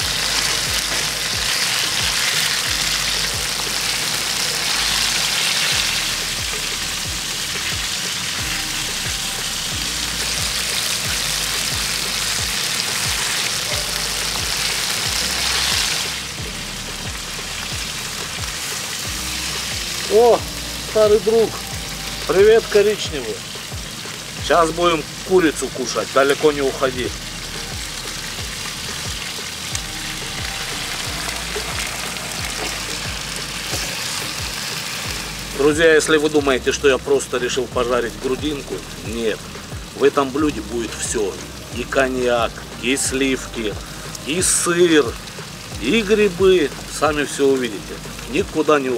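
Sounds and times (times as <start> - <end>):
background music with low beat: 0.0 - 48.9
chicken sizzling in a pan: 0.0 - 48.9.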